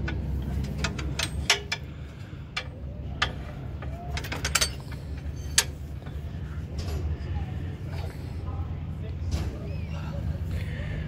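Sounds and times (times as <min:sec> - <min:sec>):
metal tool clicks and clinks: 0:00.0 - 0:01.9, 0:04.1 - 0:05.8
steady low hum: 0:00.0 - 0:11.0.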